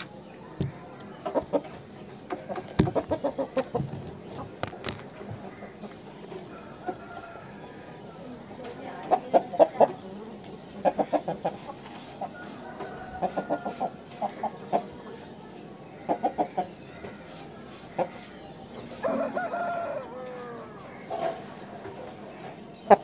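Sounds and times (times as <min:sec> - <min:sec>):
roosters clucking: 0:00.0 - 0:23.0
rooster crowing: 0:19.0 - 0:20.9.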